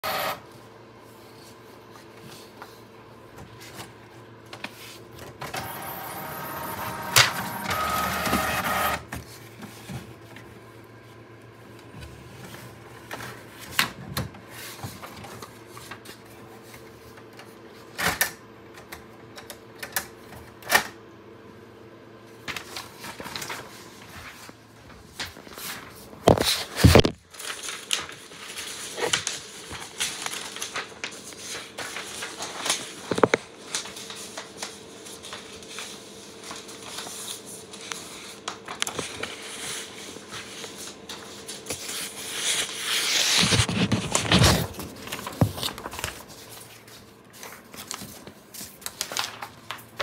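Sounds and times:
printer motor whirring: 0:00.0 - 0:00.4, 0:05.4 - 0:09.1.

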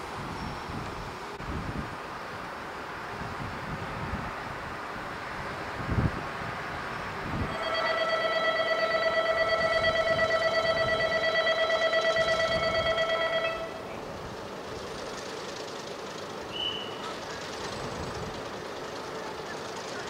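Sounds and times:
station departure bell ringing: 0:07.5 - 0:14.0.

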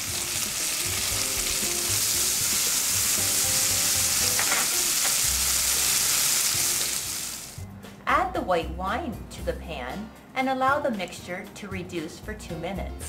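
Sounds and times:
vegetables sizzling in oil: 0:00.0 - 0:07.6.

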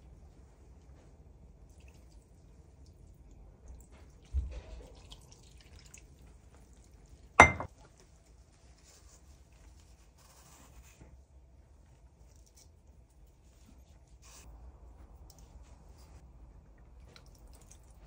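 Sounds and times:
kitchenware clinking: 0:07.4 - 0:07.7
kitchenware knocking: 0:07.4 - 0:07.7.

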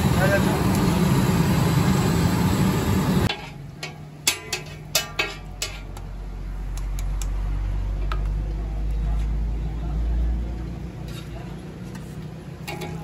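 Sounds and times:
loud street noise: 0:00.0 - 0:13.0
metal spatula scraping griddle: 0:11.1 - 0:13.0.

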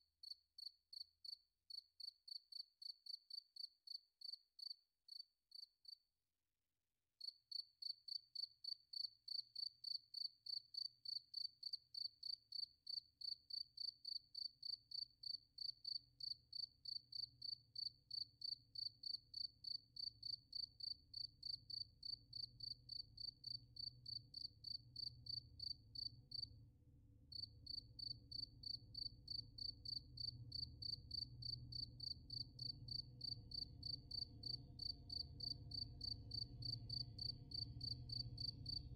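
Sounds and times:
insect chirping: 0:07.3 - 0:26.4, 0:27.7 - 0:38.8.

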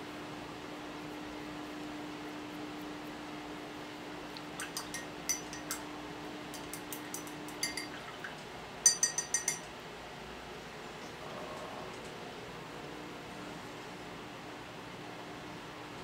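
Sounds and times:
paintbrush clinking against glass jar: 0:04.6 - 0:05.8, 0:06.6 - 0:08.0, 0:08.8 - 0:09.7.

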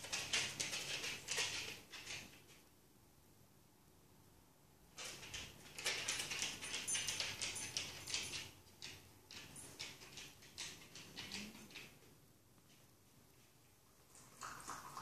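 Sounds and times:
dog claws on wooden floor: 0:00.0 - 0:02.6, 0:04.9 - 0:12.0.

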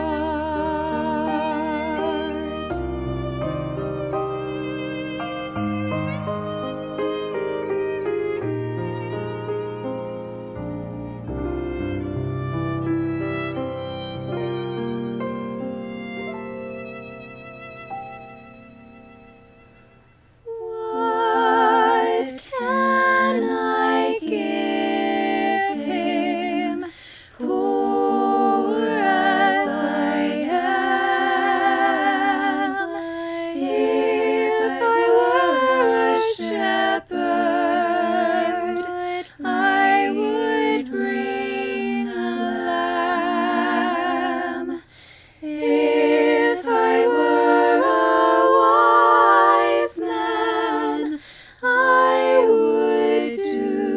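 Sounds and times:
person singing unaccompanied: 0:20.5 - 0:53.9.

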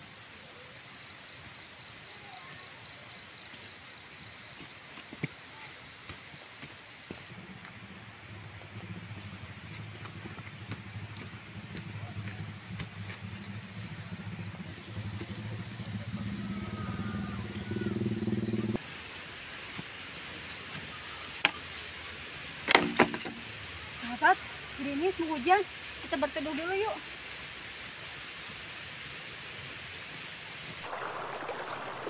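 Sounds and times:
insects buzzing: 0:05.8 - 0:32.0
engine droning: 0:07.3 - 0:18.8.

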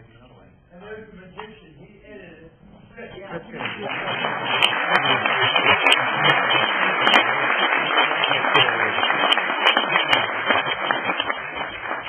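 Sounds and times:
audience applauding: 0:03.2 - 0:12.0.

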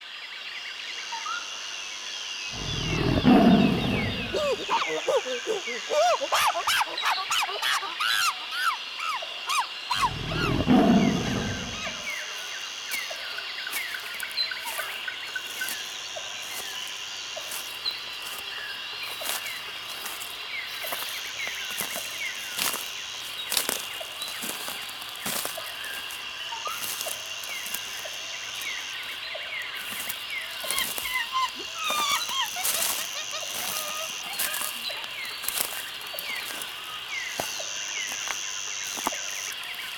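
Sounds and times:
high insect drone: 0:00.0 - 0:39.9
high insect buzz: 0:02.3 - 0:39.9
deep low rumble: 0:02.6 - 0:04.7, 0:10.0 - 0:12.1
chirping bird calls: 0:02.6 - 0:12.2, 0:29.8 - 0:38.2.

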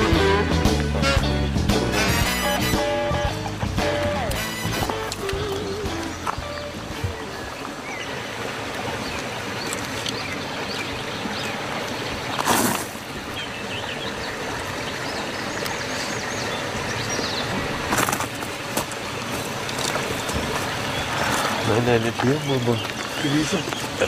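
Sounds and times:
steady outdoor hiss: 0:00.0 - 0:24.0
small birds chirping: 0:05.2 - 0:12.4, 0:13.3 - 0:24.0.

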